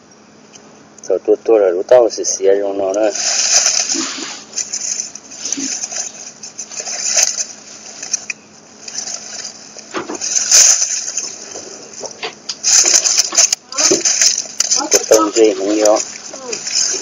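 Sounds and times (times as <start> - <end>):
dry leaves rustling and crackling: 2.9 - 17.0.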